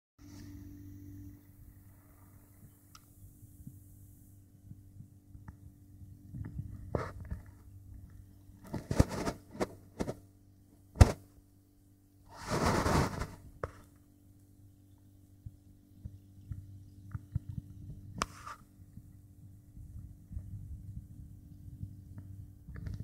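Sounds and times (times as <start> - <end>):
low steady hum: 0.2 - 23.0
handling rustles and knocks: 6.3 - 10.3.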